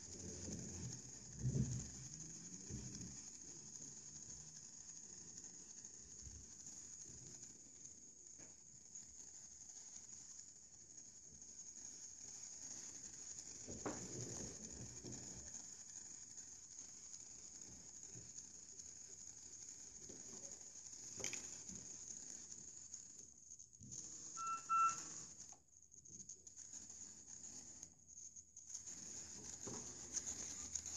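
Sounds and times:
tesla coil hissing: 23.9 - 25.4
buzzing tone: 24.4 - 25.1.

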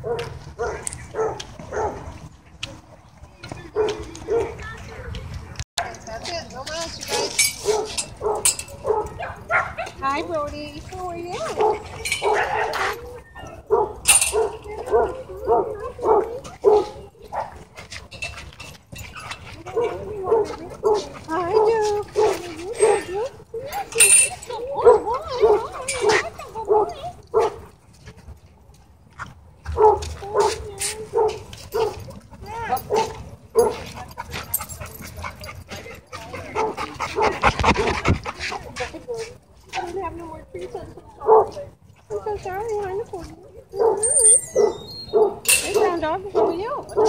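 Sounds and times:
dogs barking and yipping: 0.0 - 2.4, 3.6 - 5.1, 6.9 - 10.2, 11.2 - 28.2, 29.2 - 39.9, 40.6 - 47.0
dog yipping: 11.4 - 17.6, 29.8 - 33.8, 43.8 - 47.0
dog whining yelps: 12.2 - 13.7, 43.8 - 45.4.

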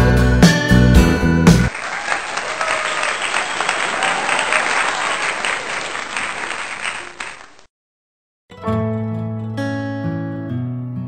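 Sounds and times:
audience applause: 1.7 - 7.7
strummed acoustic guitar song: 8.5 - 11.0.

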